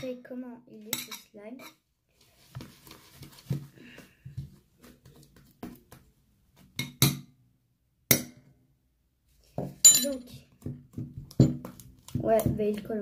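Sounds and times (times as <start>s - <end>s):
utensil knocking and scraping bowl: 9.6s - 13.0s.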